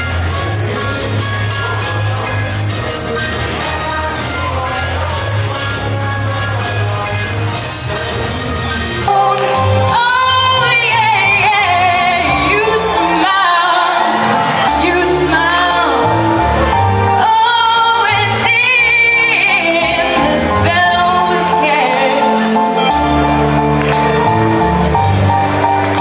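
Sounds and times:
instrumental accompaniment: 0.0s - 26.0s
woman singing into microphone: 9.0s - 16.4s, 17.1s - 22.6s.

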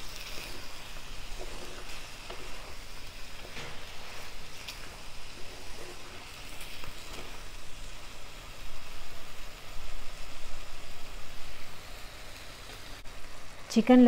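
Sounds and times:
wooden spatula scraping: 0.0s - 8.2s
chicken sizzling in oil: 0.0s - 14.0s.

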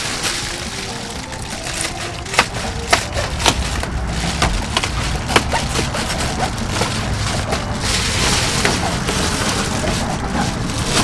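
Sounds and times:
foil crinkling: 0.0s - 11.0s.

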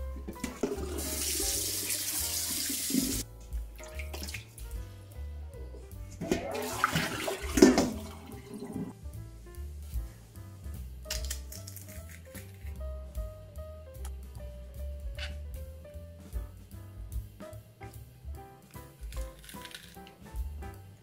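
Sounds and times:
tap water running into bowl: 0.3s - 3.2s, 3.8s - 4.5s, 6.2s - 8.9s
water splashing: 3.8s - 4.6s, 6.2s - 8.9s.

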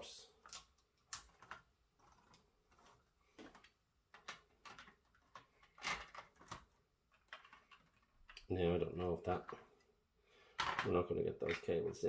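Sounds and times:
plastic toy parts clicking: 0.4s - 8.5s.

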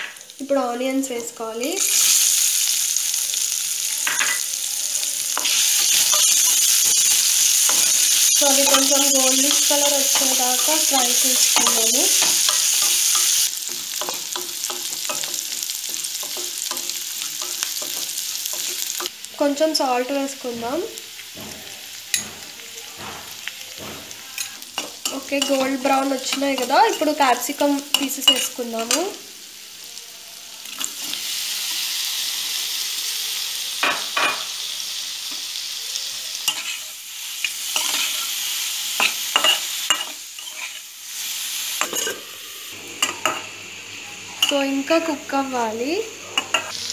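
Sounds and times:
onions sizzling in hot oil: 0.0s - 46.9s
spatula scraping a pan: 5.4s - 19.1s, 36.4s - 40.9s.

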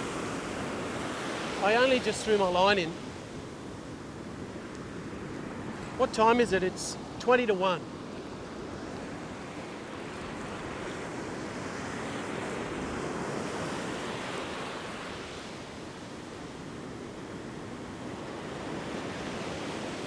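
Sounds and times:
ocean surf breaking: 0.0s - 20.0s.

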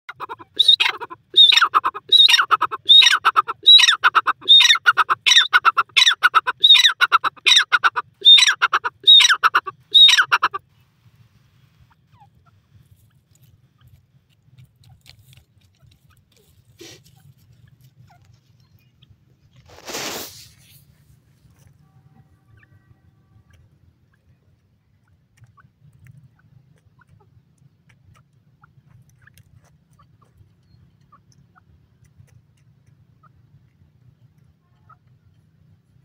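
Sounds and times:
francolin calling: 0.1s - 10.6s.

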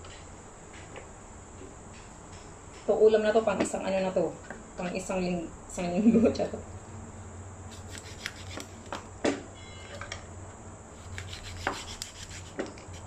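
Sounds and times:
cleaver sawing through duck: 11.0s - 13.0s.

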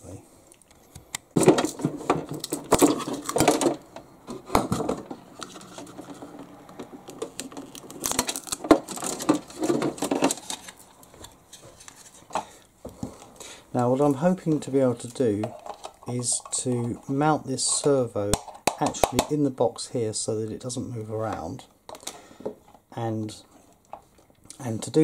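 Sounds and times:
plastic scraping and rustling: 0.7s - 13.3s, 14.0s - 19.4s.

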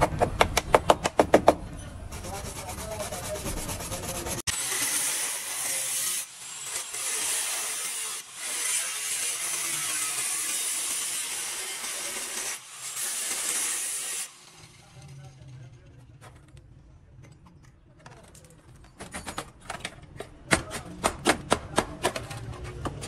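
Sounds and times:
angle grinder cutting metal: 2.2s - 15.3s.

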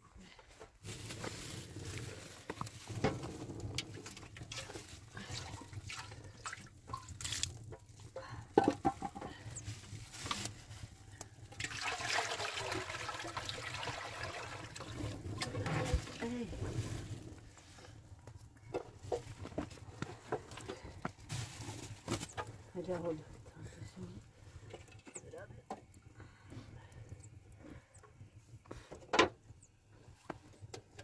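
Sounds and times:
water pouring into a metal pan: 3.6s - 7.7s, 11.4s - 17.2s
pans and jug clinking and knocking: 8.5s - 9.4s.

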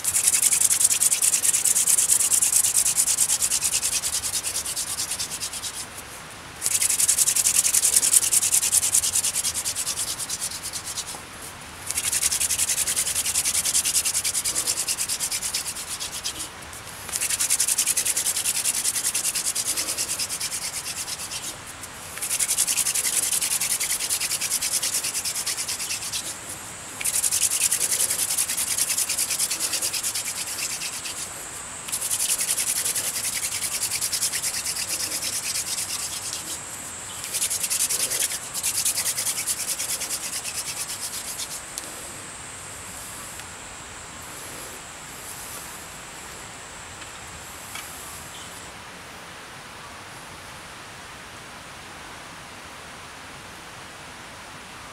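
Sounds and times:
wooden spindle grinding in fireboard: 22.1s - 41.5s.

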